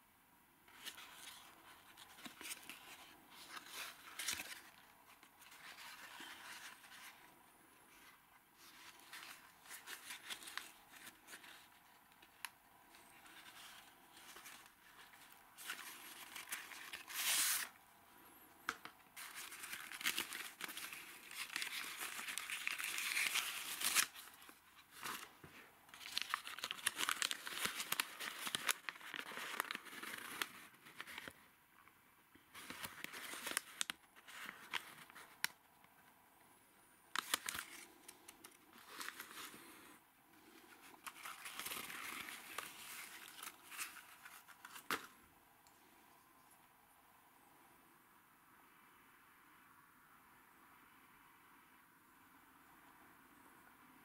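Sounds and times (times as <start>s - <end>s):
paper wrapper crinkling: 0.7s - 7.3s, 7.9s - 17.8s, 18.7s - 31.4s, 32.4s - 35.6s, 37.1s - 45.2s.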